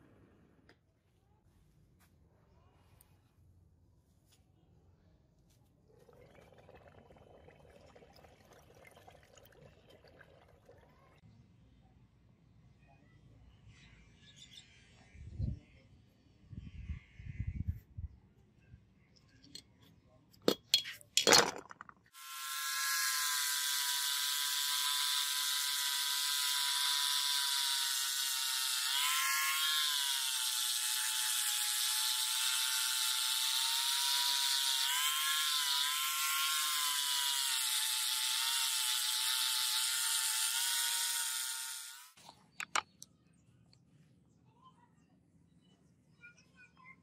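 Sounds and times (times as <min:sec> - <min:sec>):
angle grinder sanding metal: 0:22.2 - 0:42.2.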